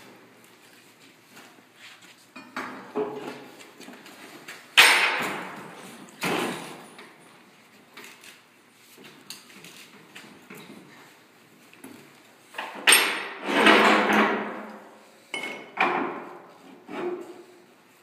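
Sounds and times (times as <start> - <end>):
metal bar clanking and scraping: 12.8 - 14.5.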